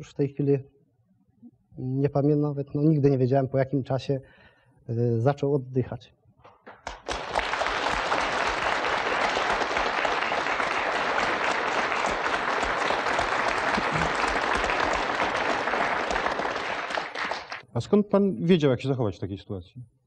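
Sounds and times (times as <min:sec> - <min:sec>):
audience applauding: 0:06.7 - 0:17.6.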